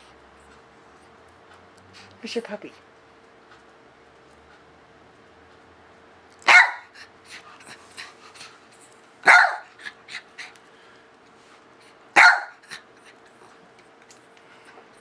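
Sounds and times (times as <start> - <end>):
dog barking: 6.4 - 7.0, 9.2 - 9.7, 12.2 - 12.8.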